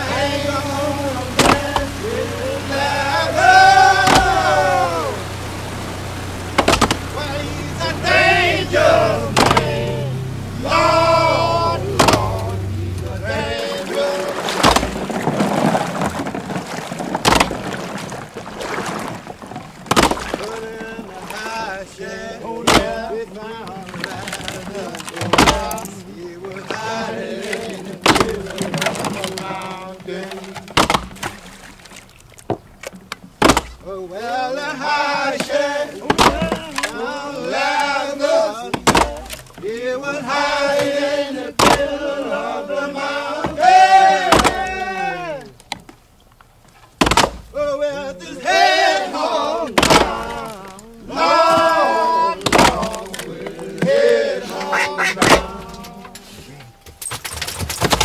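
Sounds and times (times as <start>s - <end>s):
slow song with sung notes: 0.0s - 15.2s, 20.3s - 31.3s, 33.8s - 45.7s, 47.5s - 56.9s
water sloshing and splashing: 0.0s - 58.0s
sudden loud hits: 8.7s - 13.6s.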